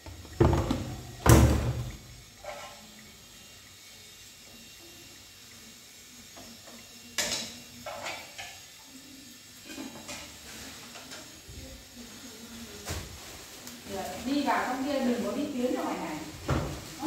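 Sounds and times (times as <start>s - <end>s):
pots and utensils clattering: 0.0s - 3.0s, 6.4s - 8.8s, 9.6s - 11.4s.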